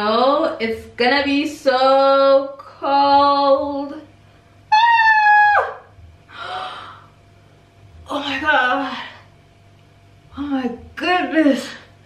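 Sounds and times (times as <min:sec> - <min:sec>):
woman squealing: 0:04.7 - 0:05.9
woman gasping: 0:06.3 - 0:07.2.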